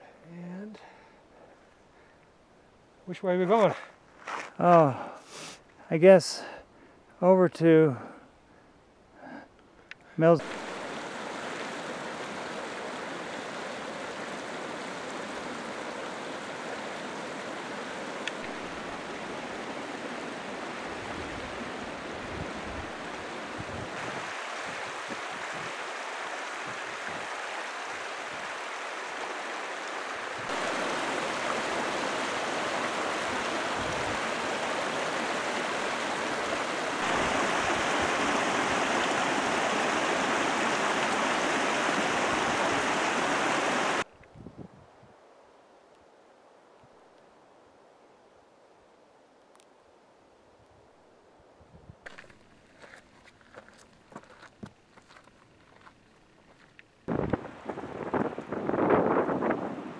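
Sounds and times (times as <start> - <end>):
creek running over rocks: 10.2 - 44.1, 52.0 - 59.9.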